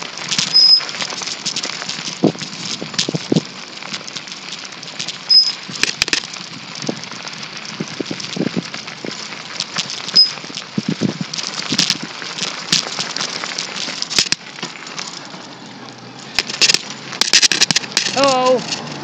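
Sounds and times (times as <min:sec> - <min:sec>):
bicycle rattling on asphalt: 0:00.0 - 0:19.0
short high squeaks: 0:00.4 - 0:00.9, 0:05.3 - 0:05.6, 0:10.1 - 0:10.4.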